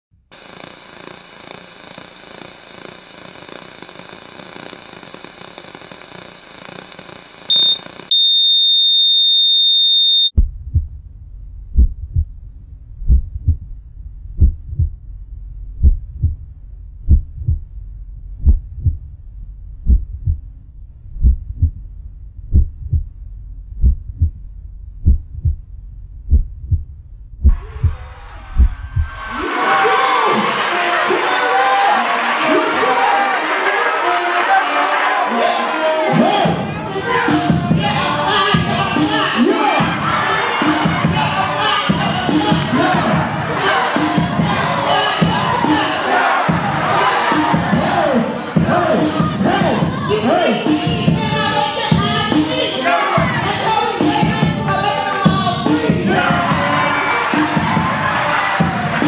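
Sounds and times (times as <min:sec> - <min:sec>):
tv static hiss: 0:00.1 - 0:08.1
high-pitched test tone: 0:07.5 - 0:10.3
short beep: 0:07.5 - 0:10.4
heartbeat thumps: 0:10.4 - 0:29.4, 0:46.5 - 0:46.9.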